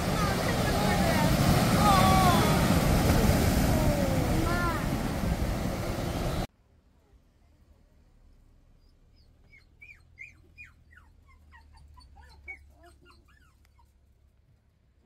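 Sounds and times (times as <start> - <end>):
small dog whimpering: 9.2 - 14.0.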